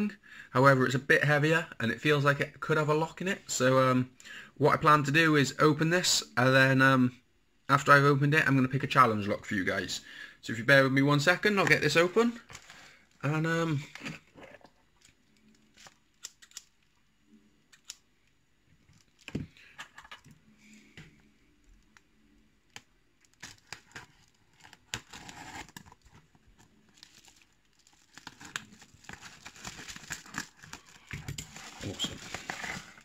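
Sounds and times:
paper envelope tearing: 23.3s - 26.0s, 27.0s - 33.0s.

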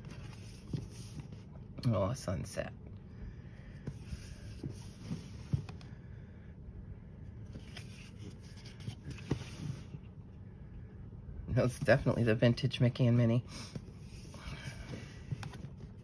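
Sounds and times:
paper pages rustling: 0.0s - 1.5s, 7.5s - 10.0s.

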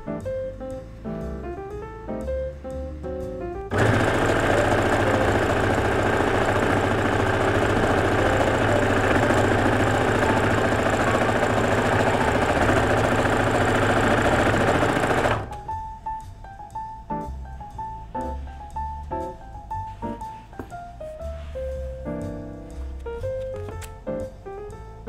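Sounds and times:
sewing machine stitching: 3.7s - 15.6s.

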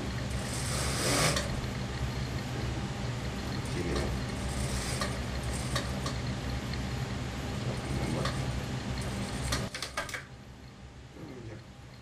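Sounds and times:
sewing machine motor hum: 0.0s - 6.9s.

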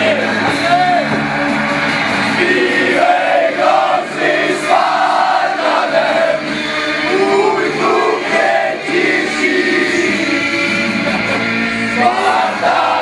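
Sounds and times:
men singing a chant: 2.4s - 13.0s.

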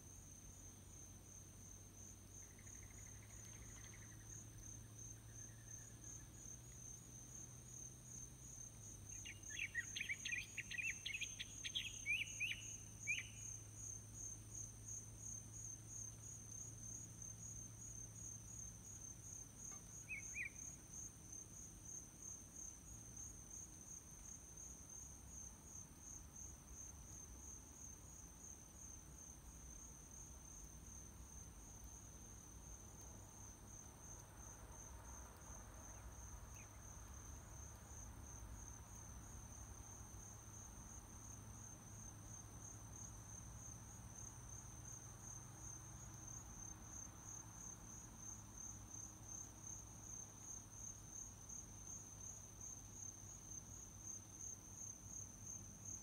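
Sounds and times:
crickets chirring: 0.0s - 56.0s
bird singing: 9.2s - 13.5s, 20.0s - 20.6s.

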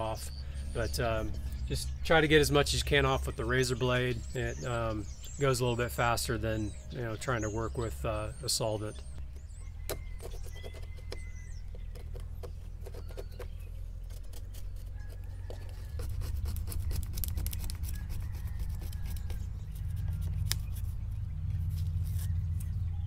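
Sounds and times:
steady low rumble: 0.0s - 9.9s, 13.5s - 23.0s
razor scraper scratching foam: 12.4s - 21.0s.

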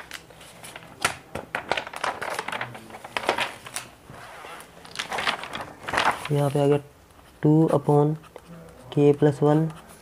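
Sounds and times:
paper rustling and crinkling: 0.0s - 7.4s.

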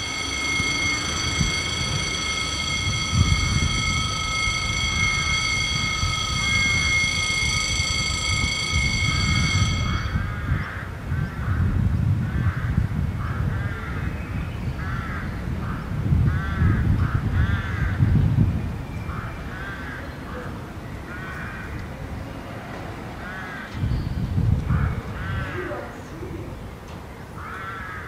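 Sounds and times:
crows cawing: 14.8s - 18.1s, 19.1s - 21.8s, 23.2s - 23.8s, 24.7s - 26.0s, 27.4s - 28.0s.

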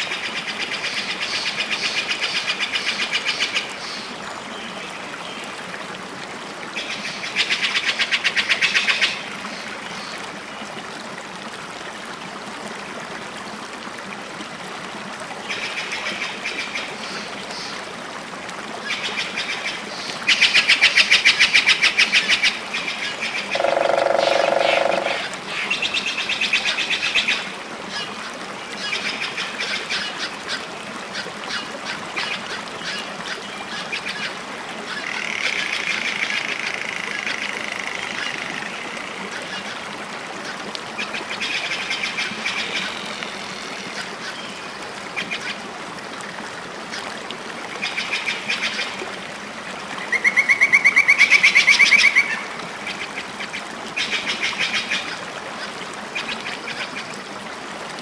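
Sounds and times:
high bird-like animal calls: 23.5s - 25.4s.

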